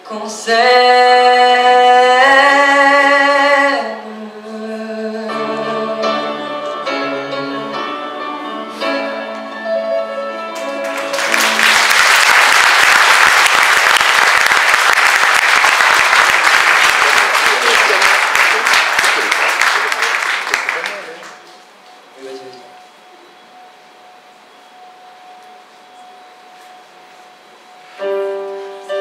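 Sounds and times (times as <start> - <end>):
instrumental music: 4.6 - 12.0, 24.8 - 29.0
audience applause: 10.6 - 21.5.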